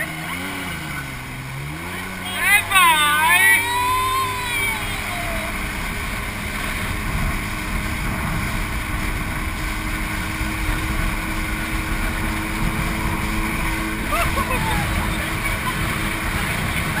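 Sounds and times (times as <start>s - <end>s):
jet ski engine droning: 0.0s - 17.0s
water rushing past hull: 0.0s - 17.0s
wind buffeting microphone: 3.7s - 17.0s.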